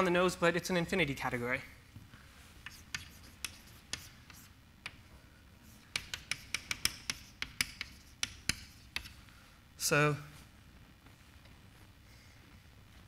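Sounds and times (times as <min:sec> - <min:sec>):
chalk tapping and scratching on blackboard: 0:02.5 - 0:05.0, 0:05.6 - 0:09.2.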